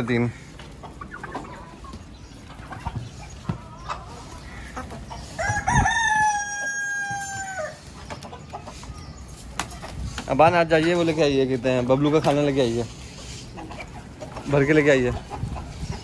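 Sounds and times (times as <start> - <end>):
rooster crowing: 5.4 - 7.8.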